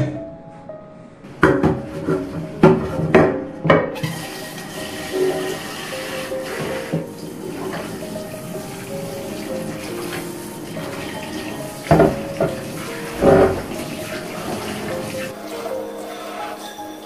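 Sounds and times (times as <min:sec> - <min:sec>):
water running from tap into sink: 0:04.0 - 0:16.6.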